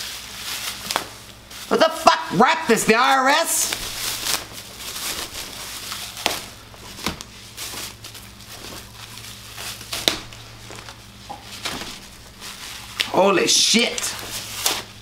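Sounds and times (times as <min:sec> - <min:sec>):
wrapping crinkling and tearing: 0:00.0 - 0:15.0.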